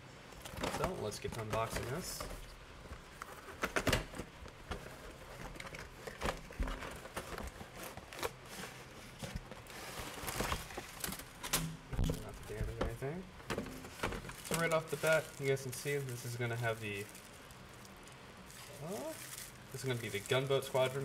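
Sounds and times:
plastic bag crinkling: 14.1 - 21.0.

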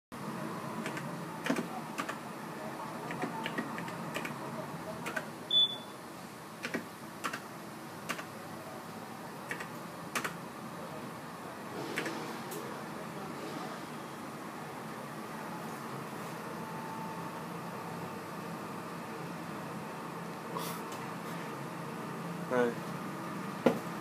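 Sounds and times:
keypad keys clicking: 3.1 - 4.3, 5.0 - 5.2, 6.6 - 7.4, 9.5 - 10.4
short high beep: 5.5 - 6.0.

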